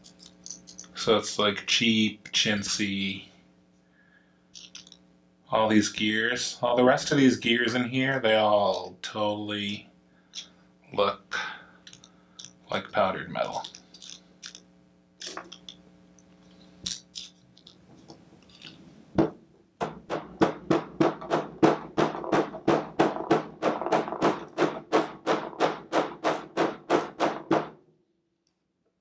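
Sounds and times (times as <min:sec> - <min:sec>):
hammer tapping metal punch: 0:19.2 - 0:27.7.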